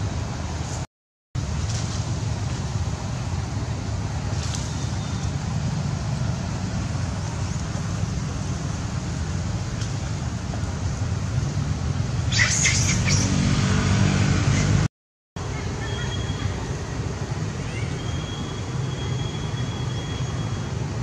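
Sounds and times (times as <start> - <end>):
outdoor background rumble: 0.0 - 21.0.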